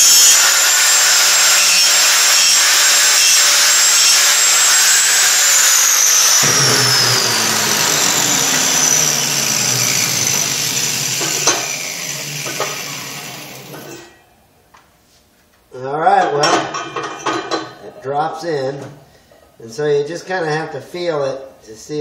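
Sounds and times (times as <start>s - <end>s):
angle grinder grinding metal: 0.0s - 14.2s.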